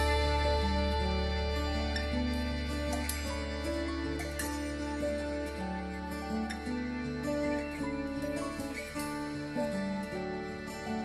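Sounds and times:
held-note melody: 0.0s - 11.0s
low drone: 0.0s - 11.0s
plucked notes: 0.0s - 11.0s.

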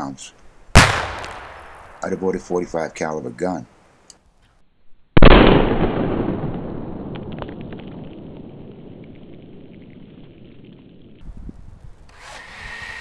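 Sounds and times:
muzzleloader gunshot: 0.8s - 2.5s, 5.2s - 8.6s
gunshot echo: 0.8s - 2.6s, 5.2s - 10.7s.

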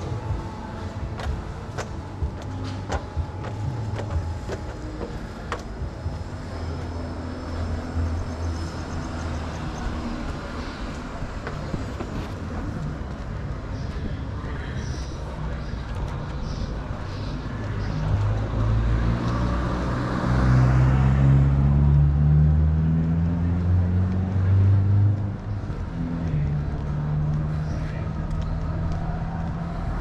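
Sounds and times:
vehicle engine rumbling: 0.0s - 30.0s.

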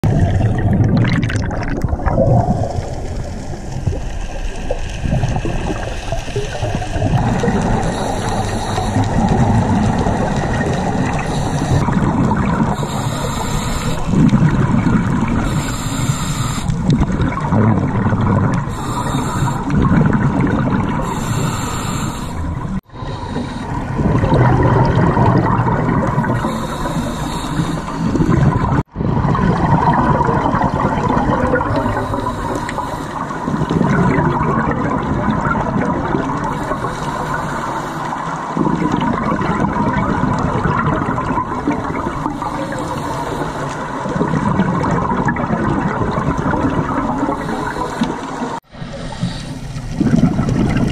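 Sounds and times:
bubbles gurgling underwater: 0.0s - 50.9s
regulator breathing hiss: 7.6s - 10.0s, 10.9s - 12.0s, 12.7s - 14.2s, 15.3s - 16.9s, 18.7s - 19.9s, 21.0s - 24.0s, 26.2s - 28.3s, 31.6s - 33.7s, 36.3s - 38.5s, 42.2s - 44.1s, 47.1s - 50.1s.

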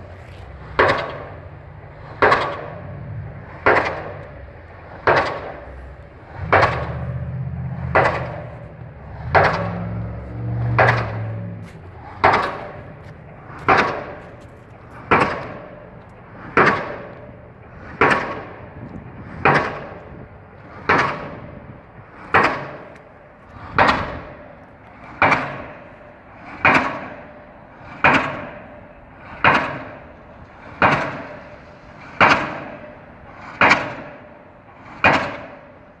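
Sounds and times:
pile driver hammer bangs: 2.2s - 3.0s, 3.6s - 4.3s, 5.0s - 5.8s, 7.8s - 14.4s, 15.0s - 15.8s, 16.5s - 17.2s, 17.8s - 18.6s, 29.4s - 30.1s, 30.7s - 31.5s, 32.2s - 34.3s, 35.0s - 35.8s.

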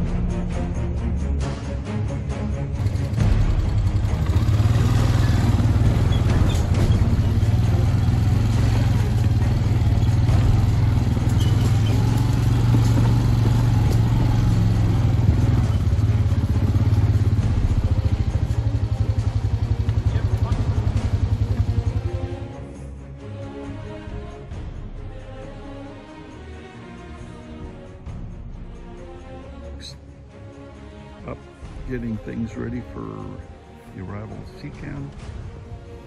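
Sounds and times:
quad engine droning: 2.8s - 22.6s.

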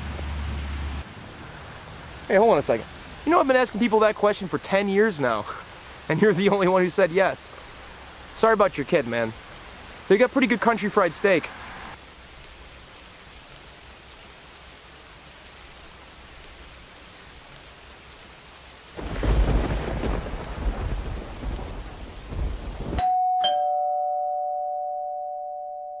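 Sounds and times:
rain hiss: 0.0s - 23.0s
thunder rumble: 19.0s - 23.0s
two-note doorbell chime: 23.0s - 26.0s.

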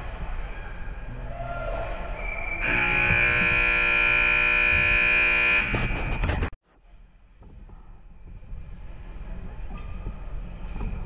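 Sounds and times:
arena horn blaring: 2.6s - 6.0s.

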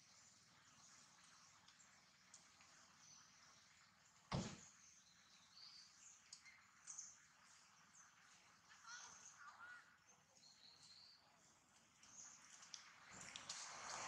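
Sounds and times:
sharp thump: 4.3s - 4.6s.

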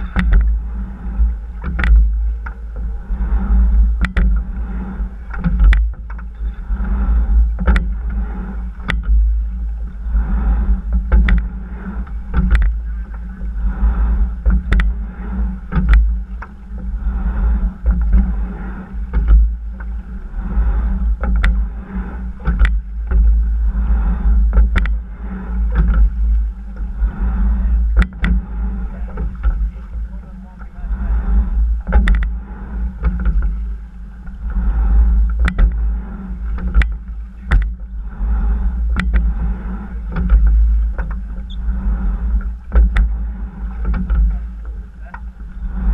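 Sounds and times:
low rumble: 0.0s - 45.9s
water rushing along hull: 0.0s - 45.9s
oars clacking in gates: 17.6s - 38.0s, 38.8s - 45.9s.

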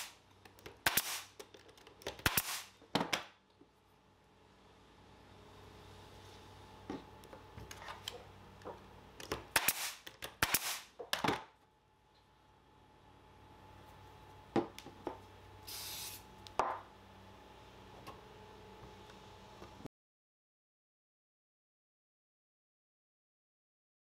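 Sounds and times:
loud sharp cracks: 0.8s - 1.3s, 2.2s - 2.7s, 9.6s - 10.9s
aerosol spray can hiss: 15.6s - 16.3s.

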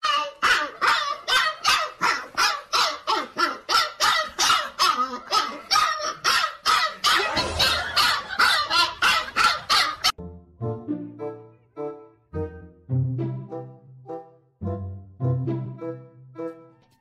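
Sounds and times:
dog yapping: 0.0s - 10.2s.

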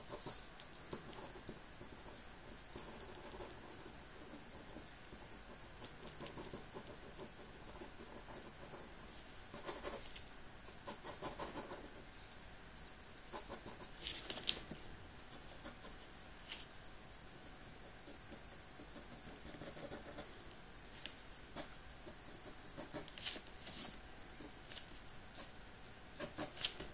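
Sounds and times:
pen scratching on paper: 0.0s - 10.1s, 10.8s - 12.0s, 17.3s - 20.3s, 21.5s - 23.8s, 26.2s - 26.9s.

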